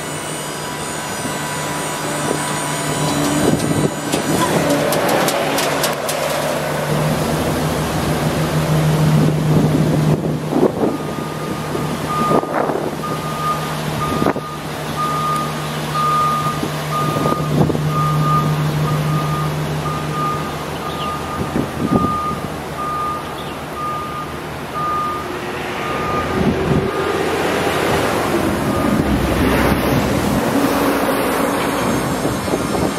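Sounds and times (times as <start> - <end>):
vehicle backup alarm beeping: 0.0 - 4.9, 8.6 - 27.4, 28.3 - 29.8.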